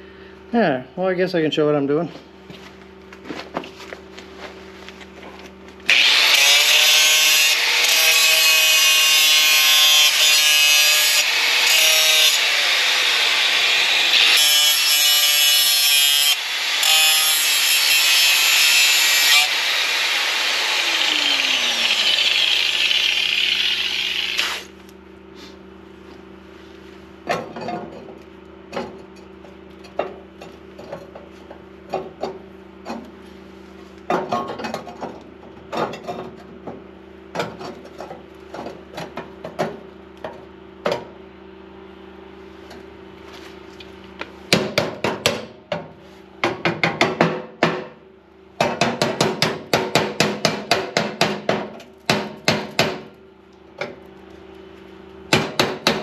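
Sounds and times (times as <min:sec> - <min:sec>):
angle grinder grinding steel: 0:05.9 - 0:24.7.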